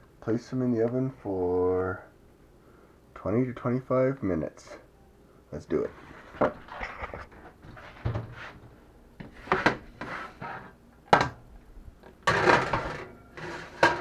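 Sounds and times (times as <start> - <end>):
baking sheet scraping onto rack: 9.2 - 10.8, 12.3 - 14.0
metal baking sheet clattering: 12.2 - 14.0.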